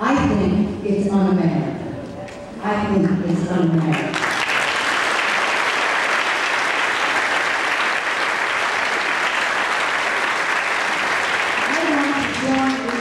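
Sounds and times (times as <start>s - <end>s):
audience applauding: 3.9s - 13.0s.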